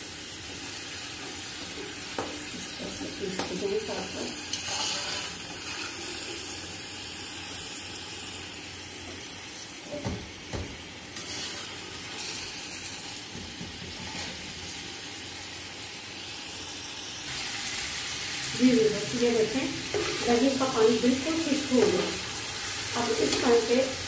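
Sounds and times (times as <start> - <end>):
spatula stirring in a pot: 4.5 - 6.5, 19.8 - 20.8.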